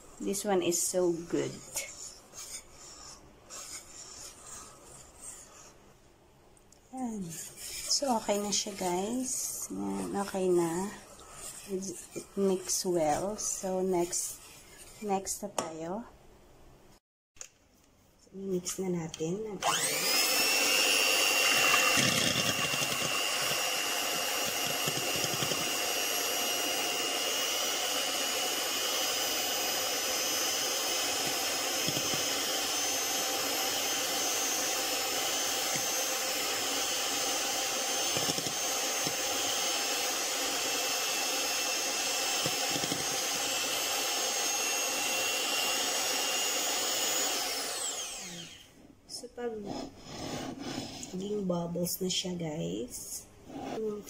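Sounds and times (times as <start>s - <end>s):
electric hand mixer whine: 7.3s - 14.4s, 19.6s - 48.8s.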